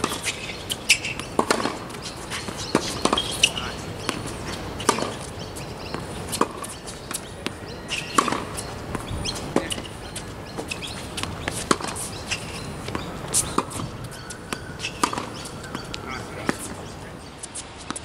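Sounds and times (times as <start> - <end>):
tennis ball bouncing: 0.0 - 18.0
tennis racket hitting ball: 0.0 - 18.0.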